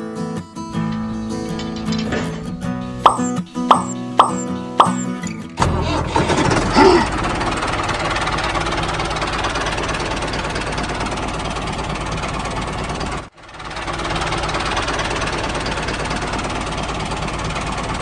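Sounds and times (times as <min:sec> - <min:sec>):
tractor engine running: 0:06.1 - 0:18.0.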